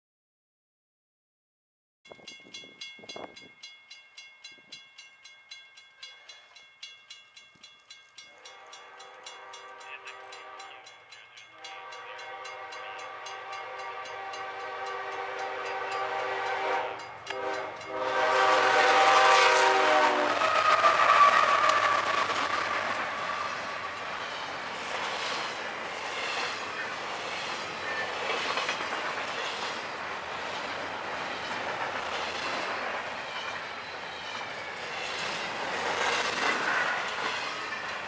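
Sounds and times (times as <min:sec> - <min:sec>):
crossing warning bell ringing: 0:02.1 - 0:38.0
train engine and wheels passing: 0:02.1 - 0:38.0
locomotive air horn blasts: 0:08.4 - 0:10.8, 0:11.6 - 0:22.2.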